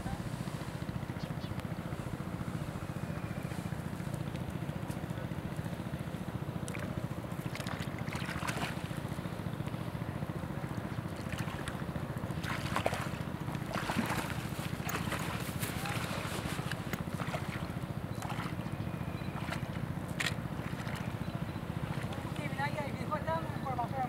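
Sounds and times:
water sloshing from wading: 0:06.4 - 0:23.3.

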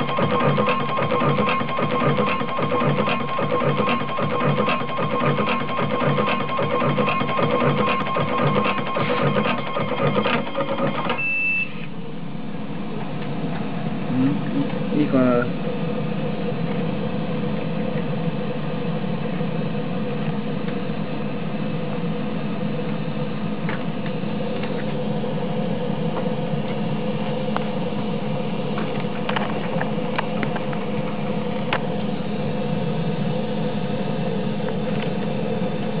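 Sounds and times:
wire stripping machine humming: 0:00.0 - 0:11.3.

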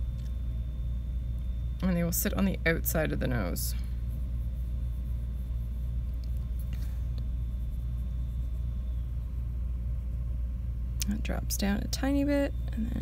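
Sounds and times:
low room rumble: 0:00.0 - 0:13.0
pencil scratching on paper: 0:03.3 - 0:09.3.

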